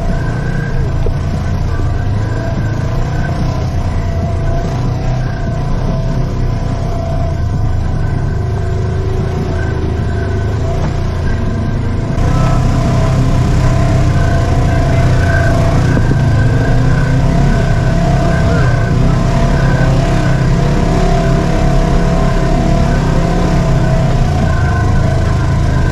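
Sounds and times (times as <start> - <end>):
vehicle engine droning: 0.0 - 25.9.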